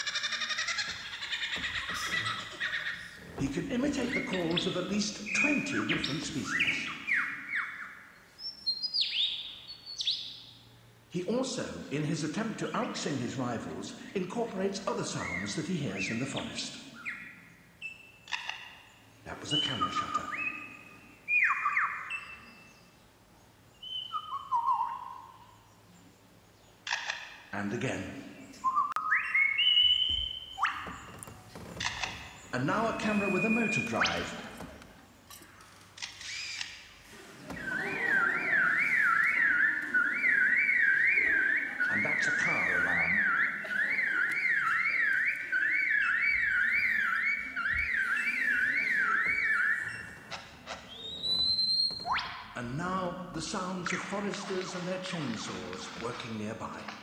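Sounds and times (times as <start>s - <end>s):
bird mimicking car alarm: 3.8s - 10.6s, 16.3s - 23.0s, 23.8s - 25.7s, 28.8s - 34.6s, 37.5s - 52.6s
bird mimicking camera shutter: 26.8s - 27.3s, 36.0s - 36.8s.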